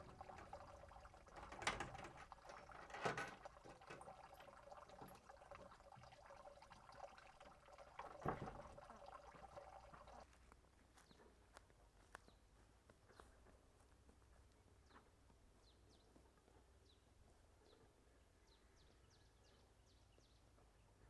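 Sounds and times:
wooden door clatter: 0.0 - 4.0.

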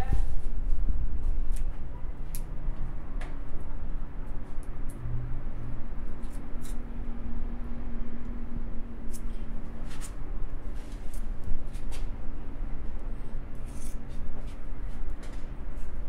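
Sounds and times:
low background hum: 0.0 - 16.0
metal tool scraping grease: 6.2 - 6.8, 13.5 - 14.2.

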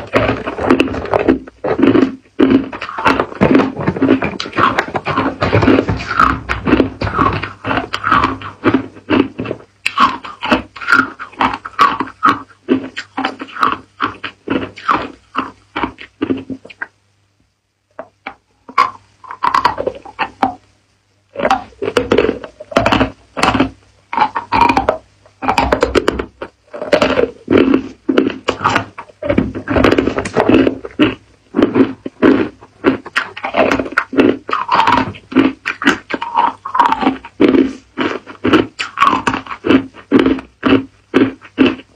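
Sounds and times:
ice crunching in mouth: 0.0 - 16.5, 21.4 - 41.9.

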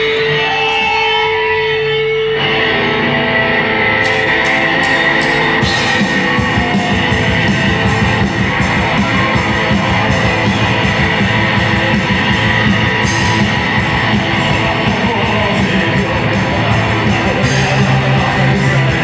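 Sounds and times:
live rock band: 0.0 - 19.0
fast drum beat: 4.9 - 19.0.

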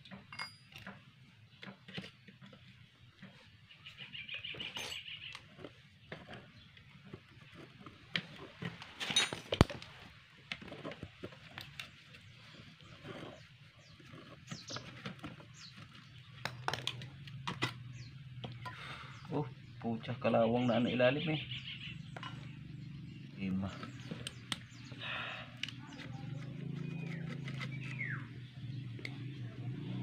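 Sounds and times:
tools clicking on metal housing: 0.0 - 1.0
bird chirping: 3.3 - 7.7, 11.9 - 30.0.

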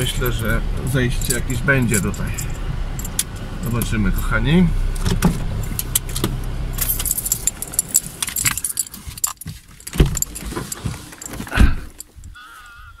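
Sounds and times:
keys jangling: 0.0 - 4.3, 5.6 - 12.4
car engine humming: 0.0 - 13.0.

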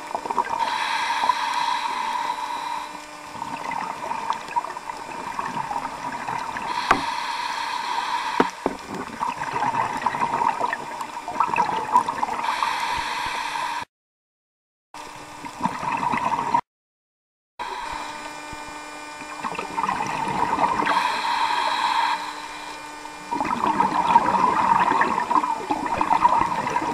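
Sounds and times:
underwater bubbling and crackling: 0.0 - 13.8, 15.4 - 16.6, 17.7 - 26.9
regulator breathing hiss: 0.6 - 3.0, 6.7 - 8.8, 12.4 - 13.9, 20.9 - 22.8
sharp knocks: 6.9 - 7.1.

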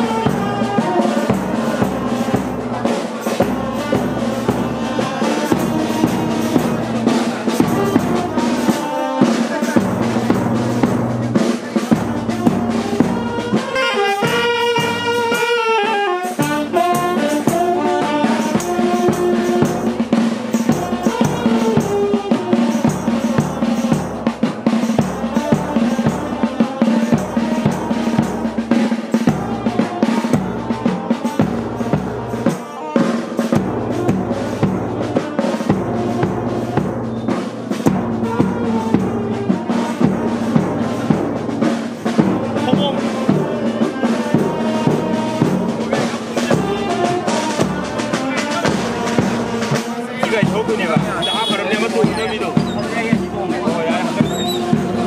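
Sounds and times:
brass melody: 0.0 - 55.0
drum kit beat: 0.0 - 55.0.

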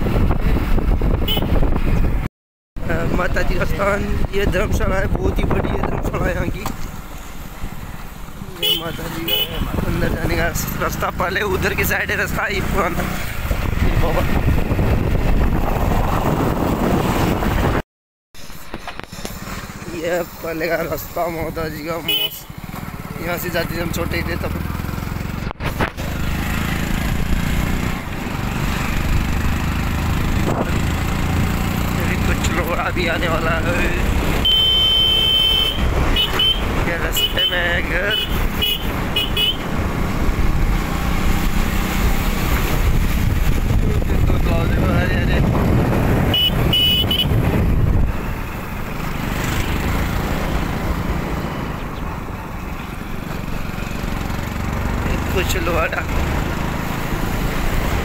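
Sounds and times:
wind noise: 0.0 - 6.8, 13.2 - 17.8, 27.1 - 31.8, 38.3 - 52.2
motorcycle engine running: 18.7 - 58.0.

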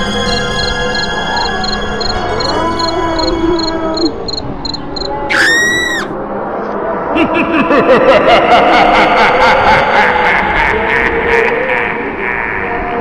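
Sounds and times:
high repeating ticking: 0.0 - 5.2
high-pitched shriek: 0.0 - 6.2
wavering cries: 0.0 - 6.2.

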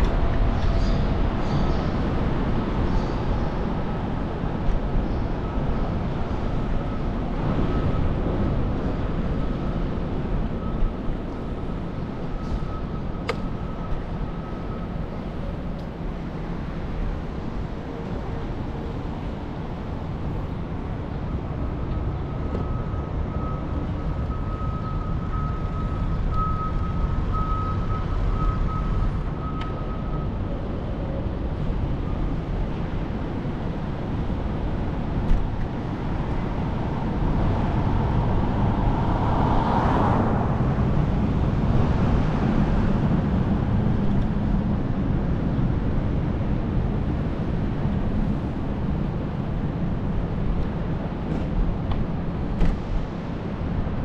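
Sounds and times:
city traffic noise: 0.0 - 54.0
wind rumble on microphone: 24.0 - 54.0.

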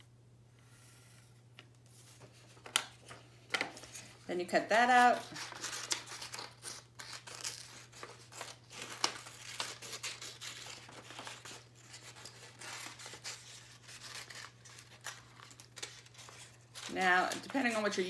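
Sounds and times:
scissors snipping paper: 4.9 - 18.0.

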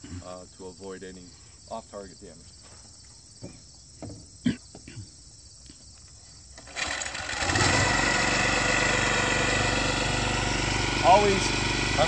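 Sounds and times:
small gasoline engine running: 6.6 - 12.0.

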